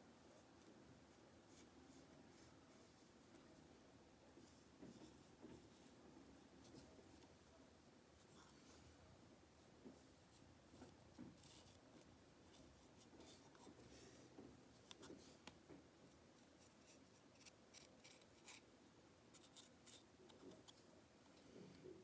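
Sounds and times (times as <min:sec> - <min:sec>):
paintbrush scratching: 0:19.3 - 0:20.8.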